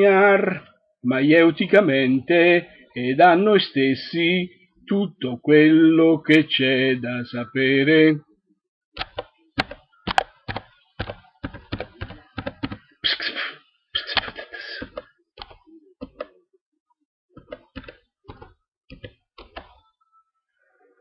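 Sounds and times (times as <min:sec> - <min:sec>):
sharp clicks and knocks: 0:09.0 - 0:12.8.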